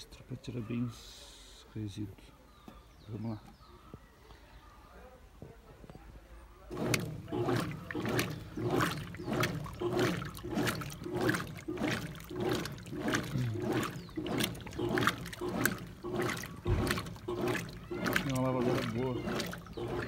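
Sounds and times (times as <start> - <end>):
washing machine agitator sloshing water: 6.7 - 20.0.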